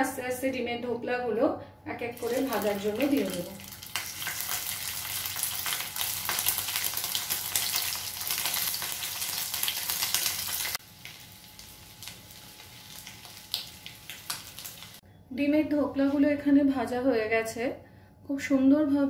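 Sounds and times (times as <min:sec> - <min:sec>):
food sizzling in hot oil: 0:02.1 - 0:15.0.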